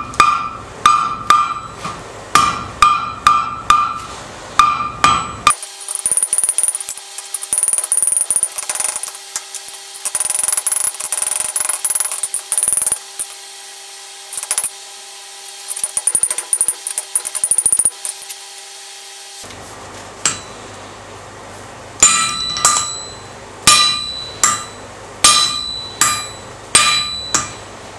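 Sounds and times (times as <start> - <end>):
hammer striking steel on anvil: 0.0 - 13.4, 20.2 - 20.6, 22.0 - 27.7.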